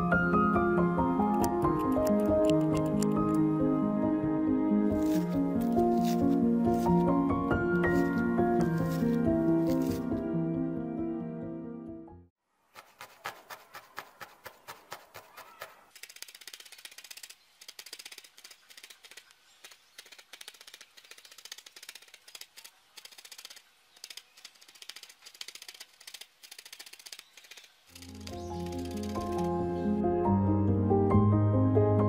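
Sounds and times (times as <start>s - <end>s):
felting needle stabbing wool: 12.7s - 16.7s.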